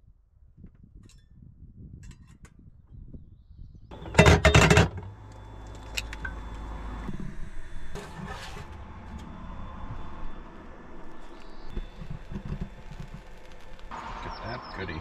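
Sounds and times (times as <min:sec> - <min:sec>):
low hum with high whine: 0:03.1 - 0:15.0
cookware clattering: 0:04.0 - 0:05.0.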